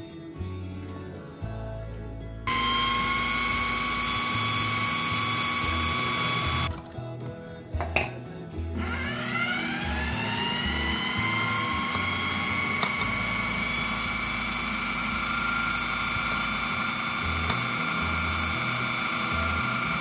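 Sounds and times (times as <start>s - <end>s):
food processor motor whining: 2.5s - 6.7s, 8.8s - 20.0s.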